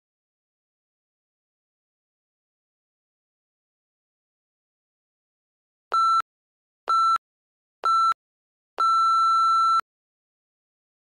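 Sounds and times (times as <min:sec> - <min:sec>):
electronic timer beeps: 0:05.9 - 0:06.2, 0:06.9 - 0:07.2, 0:07.8 - 0:08.2, 0:08.8 - 0:09.8.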